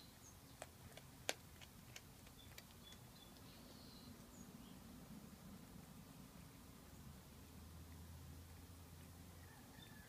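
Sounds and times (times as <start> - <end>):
cat chewing: 0.6 - 3.1.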